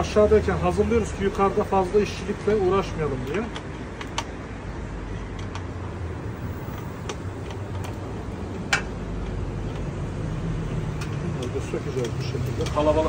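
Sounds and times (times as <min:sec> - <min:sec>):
small plastic clicks: 0:05.3 - 0:05.7.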